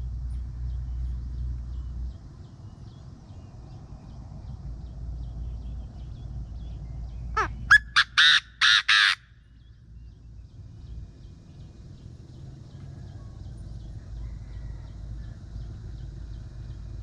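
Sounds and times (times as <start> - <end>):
faint low rumble: 0.0 - 7.7, 9.3 - 17.0
francolin calling loudly: 7.3 - 9.6.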